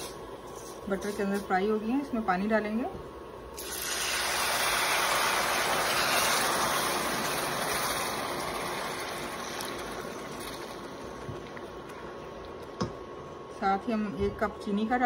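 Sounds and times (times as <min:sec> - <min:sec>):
pan sizzling: 0:03.6 - 0:12.2.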